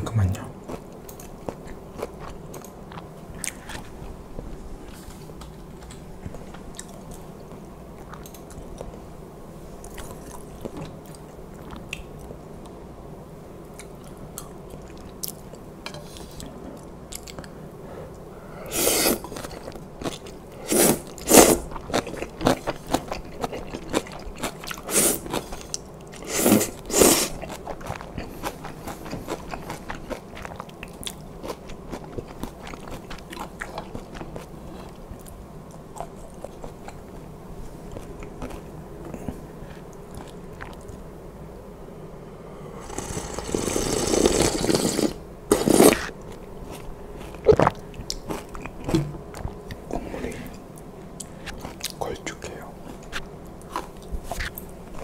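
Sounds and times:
loud noodle slurps: 0:18.7 - 0:19.3, 0:20.6 - 0:21.6, 0:24.9 - 0:25.3, 0:26.2 - 0:27.4, 0:42.8 - 0:46.1
close chewing of noodles: 0:18.7 - 0:37.2, 0:42.8 - 0:49.8.

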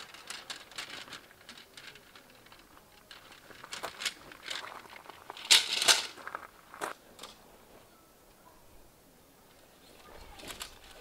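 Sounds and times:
shoes crunching on gravel: 0:03.2 - 0:07.0.

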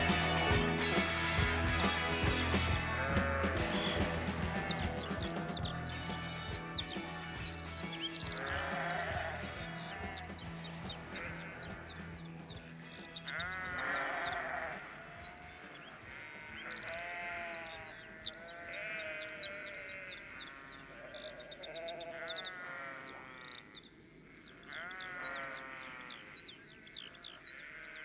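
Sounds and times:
quick high chirps: 0:00.0 - 0:11.3
sheep bleating: 0:00.0 - 0:28.0.

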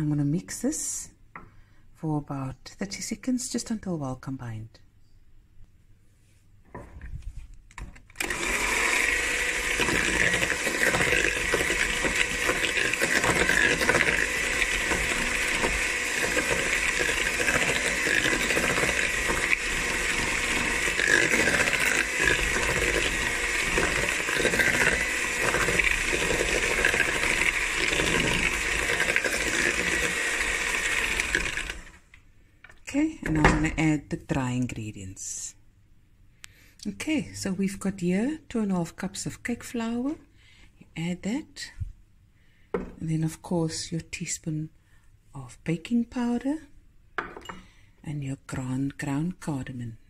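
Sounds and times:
electric hand mixer whirring: 0:08.1 - 0:32.1.

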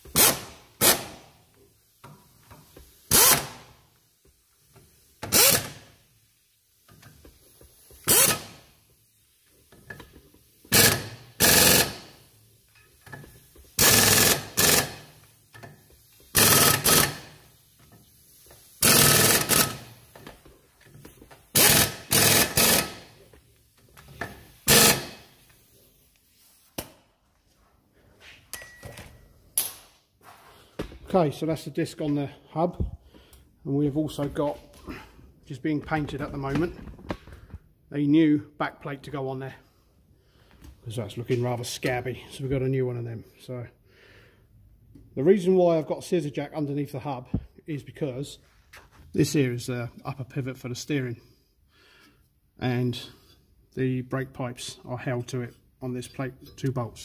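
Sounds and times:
pneumatic impact wrench bursts: 0:00.0 - 0:01.4, 0:02.0 - 0:03.9, 0:05.0 - 0:06.0, 0:06.9 - 0:08.9, 0:09.9 - 0:12.4, 0:13.0 - 0:17.7, 0:18.4 - 0:20.3, 0:21.5 - 0:23.3, 0:24.1 - 0:25.5.

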